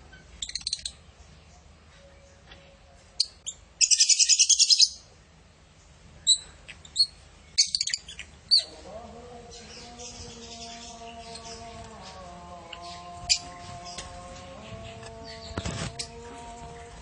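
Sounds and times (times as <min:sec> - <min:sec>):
birds chirping: 0:00.0 - 0:17.0.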